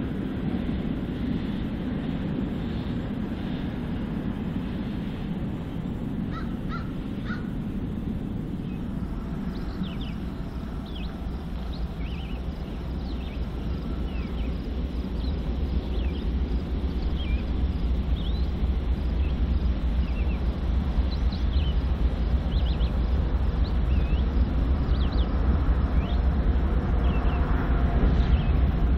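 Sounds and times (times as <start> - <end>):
low steady rumble: 0.0 - 28.9
bird calling: 6.3 - 7.5
small birds chirping: 8.6 - 16.4, 17.0 - 25.4.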